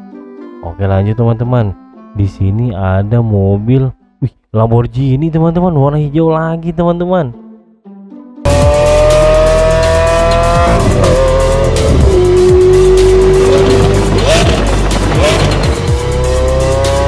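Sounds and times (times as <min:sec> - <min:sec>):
car engine revving: 0:08.5 - 0:17.0.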